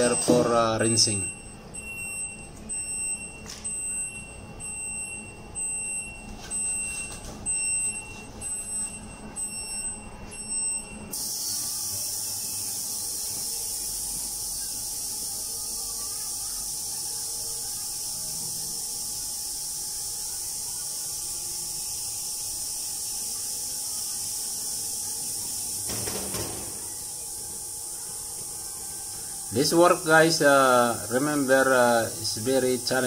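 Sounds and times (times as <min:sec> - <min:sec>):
high electronic alarm beeping: 0:00.0 - 0:15.4, 0:17.3 - 0:27.8
steady high hiss: 0:11.1 - 0:33.0.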